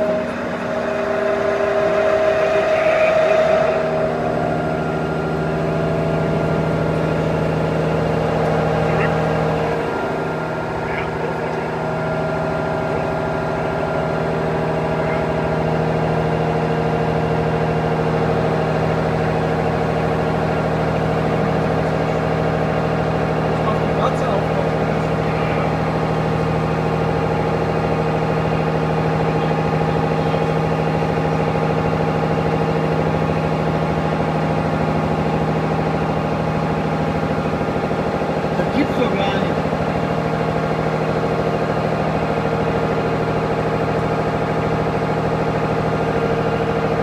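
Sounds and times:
milling machine cutting metal: 0.0s - 22.2s.

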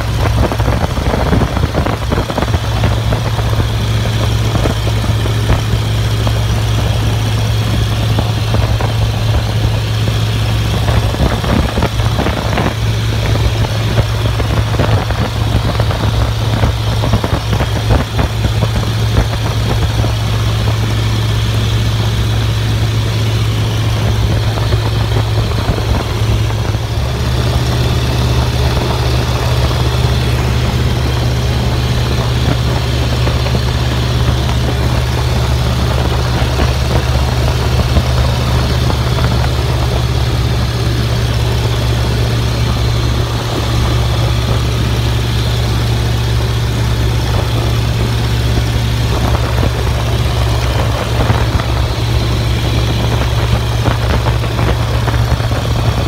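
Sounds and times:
propeller plane engine drone: 0.0s - 56.0s.

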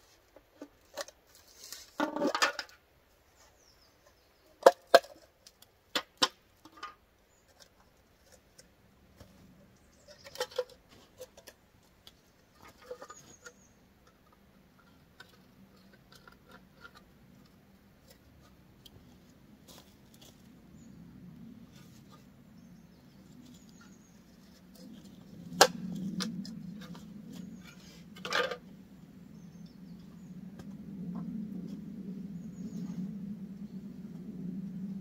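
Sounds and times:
low steady rumble: 11.6s - 35.0s.

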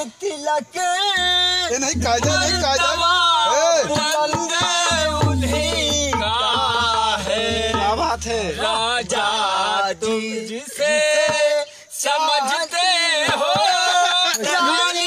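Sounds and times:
men singing folk song with music: 0.0s - 15.0s
low hum: 1.2s - 3.4s.

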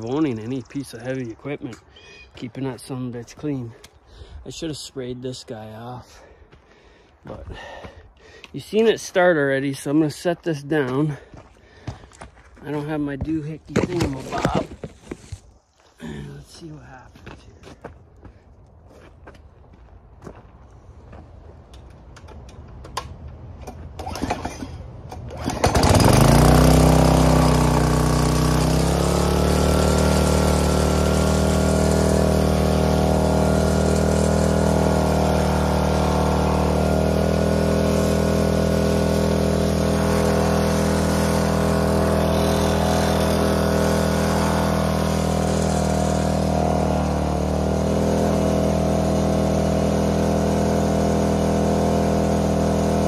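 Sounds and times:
pressure washer engine running: 25.4s - 53.0s.

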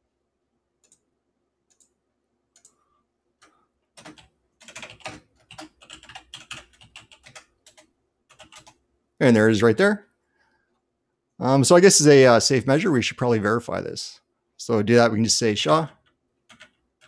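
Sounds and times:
keyboard typing: 1.7s - 2.8s, 3.4s - 8.8s, 15.6s - 17.0s.

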